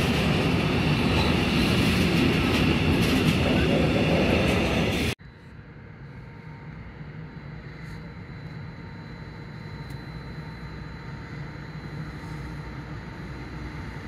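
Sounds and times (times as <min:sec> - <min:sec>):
locomotive rumble: 0:00.0 - 0:05.2
faint high whine: 0:05.2 - 0:14.0.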